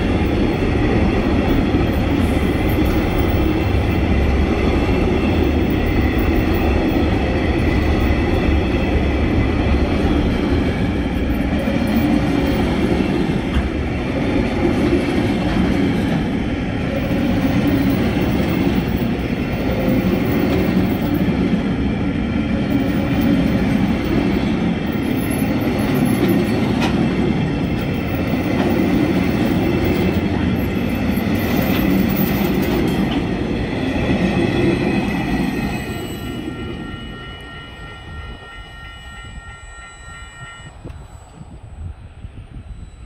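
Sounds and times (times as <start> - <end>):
train wheels rumbling on rails: 0.0 - 43.0
high ringing tone: 35.0 - 41.4.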